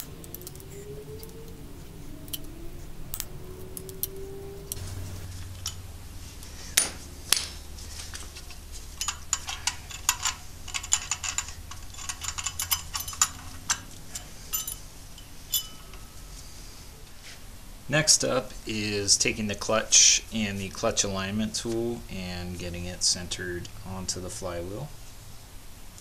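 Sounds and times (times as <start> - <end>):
wrench clicking on bolts: 0.0 - 1.4, 2.3 - 2.5, 9.0 - 16.0
sharp metal knocks: 6.8 - 7.6.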